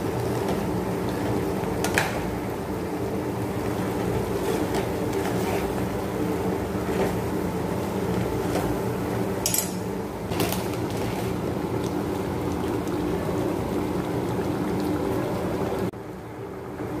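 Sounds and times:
gravy bubbling in a pan: 0.0s - 17.0s
spatula scraping a pan: 4.3s - 5.9s.

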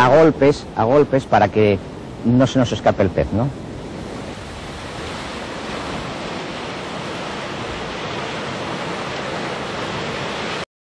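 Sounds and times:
waves breaking on rocky shore: 3.4s - 10.6s.

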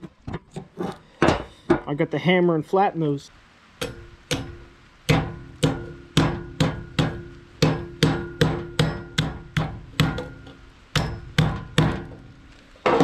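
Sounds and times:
hammer striking metal: 3.8s - 12.2s.

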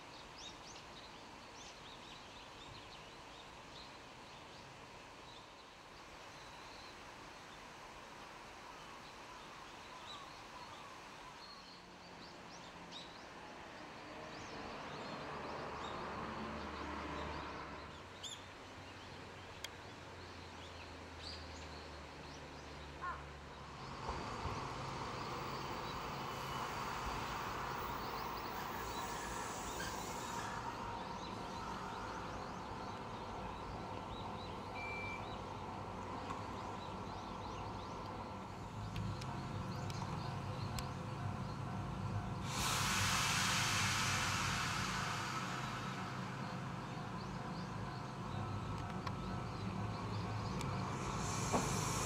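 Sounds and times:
electric train arriving: 23.6s - 36.1s, 36.9s - 52.0s.

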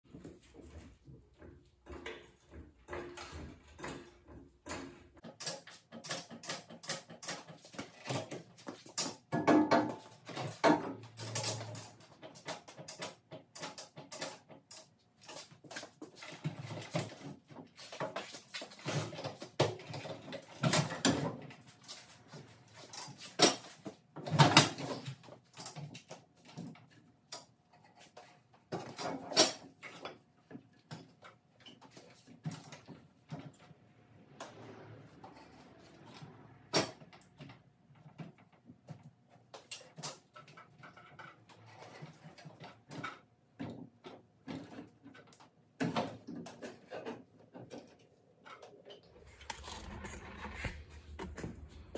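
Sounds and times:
metal knocks and scrapes: 0.1s - 14.6s, 30.8s - 43.3s, 44.4s - 51.9s.

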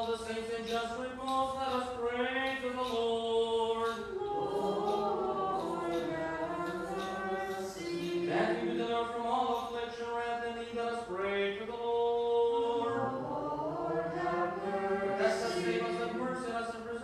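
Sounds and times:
liturgical chant on held notes: 0.0s - 17.0s
lower vocal part: 2.8s - 9.7s, 10.4s - 17.0s.

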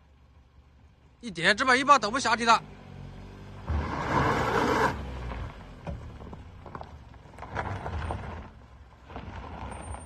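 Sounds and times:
car engine at low revs: 0.0s - 9.7s
tyres crunching over stones: 5.3s - 10.0s.

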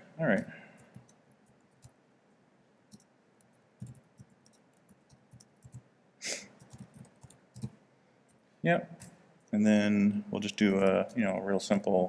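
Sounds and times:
computer keys typing: 0.3s - 2.0s, 2.9s - 5.9s, 6.5s - 7.8s, 10.4s - 12.0s
brief hiss: 6.2s - 6.5s.

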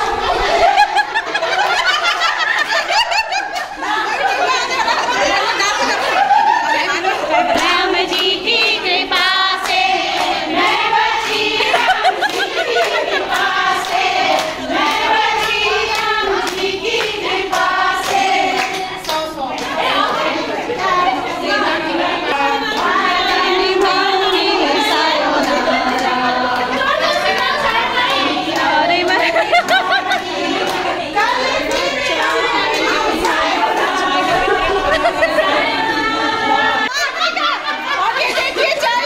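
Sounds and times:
people clapping along: 0.0s - 39.0s
women singing together: 0.0s - 39.0s
hand clapping: 7.5s - 20.2s.

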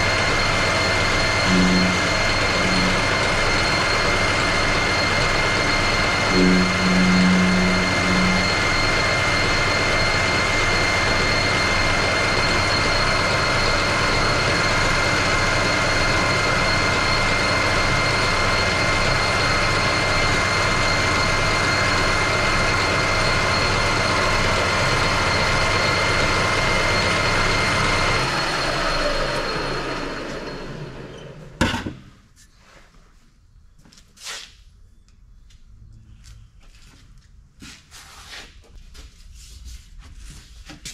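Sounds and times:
metal lathe whining: 0.0s - 31.6s
lathe spinning down: 0.0s - 31.9s
sharp clunk: 31.6s - 32.1s.

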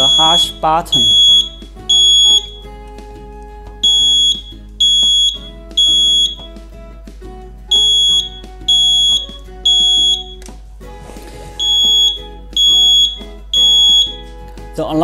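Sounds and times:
smoke alarm beeping: 0.0s - 2.8s, 3.8s - 6.7s, 7.7s - 10.5s, 11.6s - 14.3s
quiet background music: 0.0s - 15.0s.

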